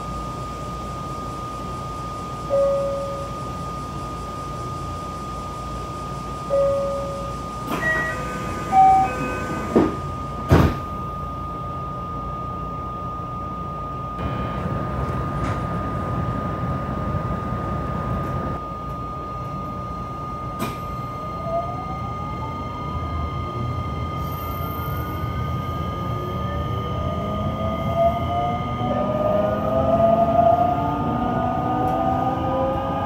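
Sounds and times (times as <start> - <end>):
train inverter rising whine: 0.0 - 33.0
electronic chime tones: 2.5 - 3.6, 6.5 - 10.3, 19.0 - 29.8
train doors thumping shut: 7.6 - 11.0, 15.4 - 15.7, 20.6 - 20.9.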